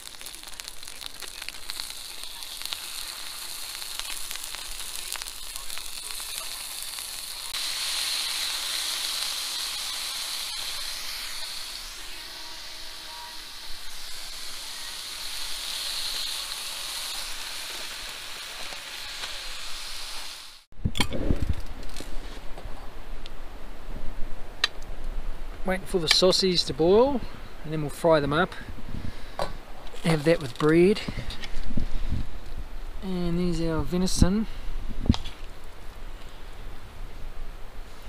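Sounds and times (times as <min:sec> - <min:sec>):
meat sizzling in a pan: 0:00.0 - 0:20.7.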